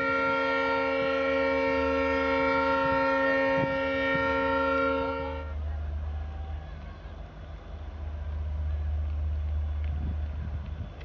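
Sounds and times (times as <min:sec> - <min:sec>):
locomotive horn blast: 0:00.0 - 0:05.6
train rumble: 0:00.0 - 0:11.0.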